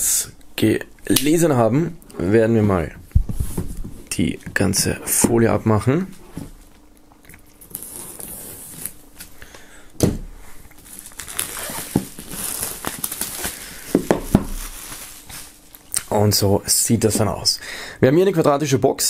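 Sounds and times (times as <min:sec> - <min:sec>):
plastic shrink-wrap tearing: 0:07.6 - 0:09.0, 0:10.8 - 0:16.1.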